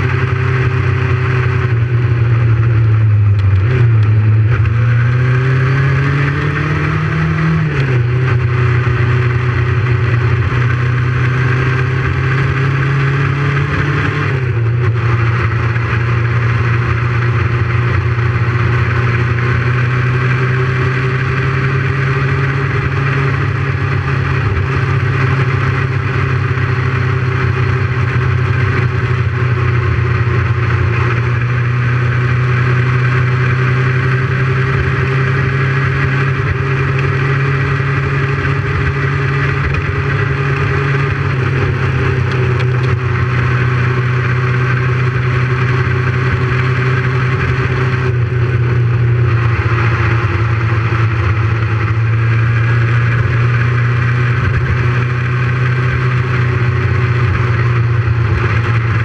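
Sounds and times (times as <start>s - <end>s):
motorcycle engine cruising: 0.0s - 59.0s.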